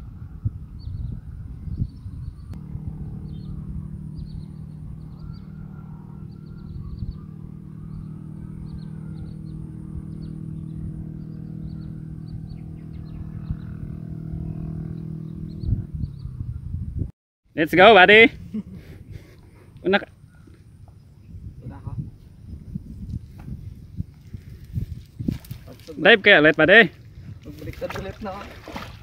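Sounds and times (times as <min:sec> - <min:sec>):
small engine idling: 0:02.6 - 0:13.8
bird chirps: 0:03.2 - 0:16.6.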